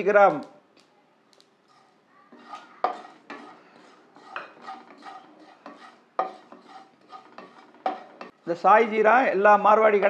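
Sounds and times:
wooden spatula scraping seeds in pan: 0:01.6 - 0:08.6
spatula clanking against pan: 0:01.7 - 0:08.4.

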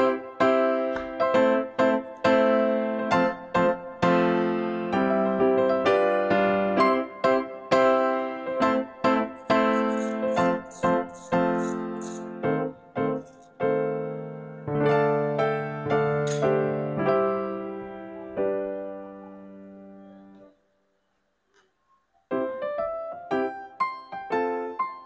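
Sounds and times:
piano melody: 0:00.0 - 0:25.0
short high hissing strokes: 0:09.5 - 0:12.4.

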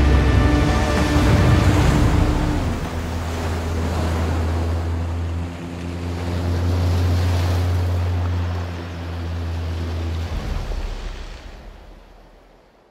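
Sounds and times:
water rushing and spraying: 0:00.0 - 0:12.9.

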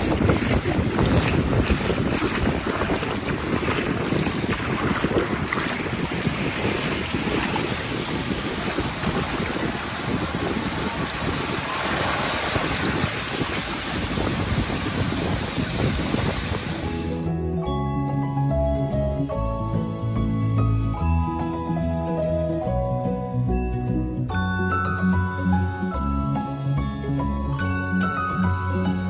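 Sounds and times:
small waves lapping: 0:00.0 - 0:17.1
wind buffeting microphone: 0:00.0 - 0:17.1.

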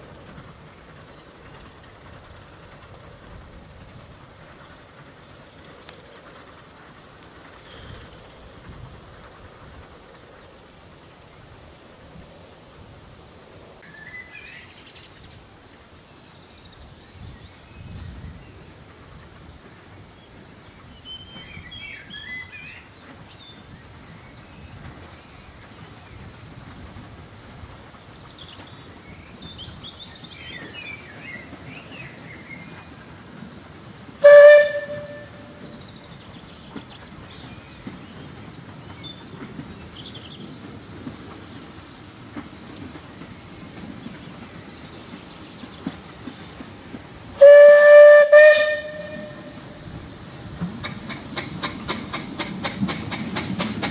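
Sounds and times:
distant steam whistle blasts: 0:34.2 - 0:35.9, 0:47.3 - 0:49.9.

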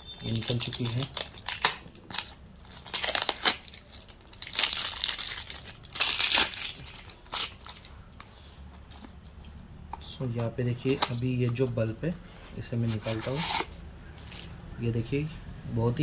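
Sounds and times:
plastic film crinkling and tearing: 0:00.0 - 0:08.1.

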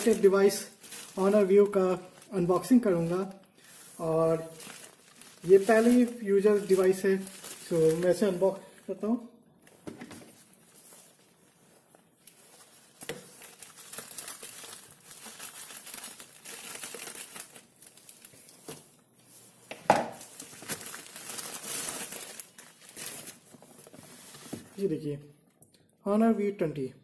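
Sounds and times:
plastic bag tearing and crinkling: 0:00.0 - 0:08.5, 0:12.2 - 0:18.8, 0:20.1 - 0:24.4.

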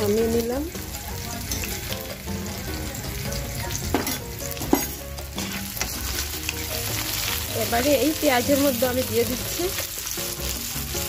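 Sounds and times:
onions sizzling in oil: 0:00.0 - 0:11.0.

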